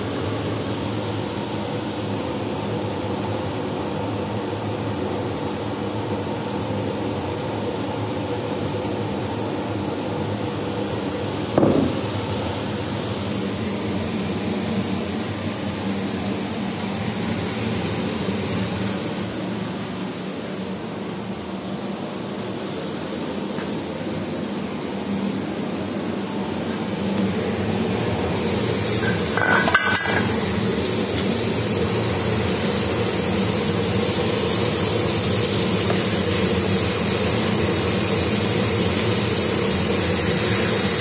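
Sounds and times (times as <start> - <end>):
steady mechanical hum: 0.0 - 41.0
brief thump: 11.6 - 12.0.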